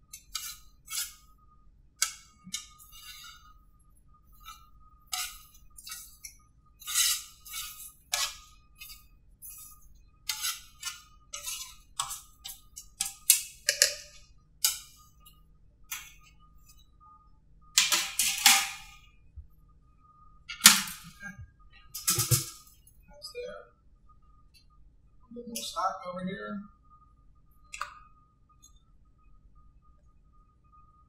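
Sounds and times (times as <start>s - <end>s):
metal spatula scraping sheet pan: 0.1s - 1.3s, 2.0s - 3.6s, 4.3s - 15.0s, 17.8s - 19.0s.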